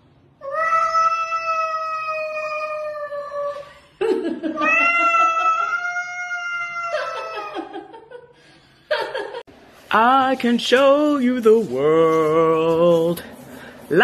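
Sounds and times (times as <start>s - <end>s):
cat yowling: 0.4s - 3.6s, 4.6s - 7.6s.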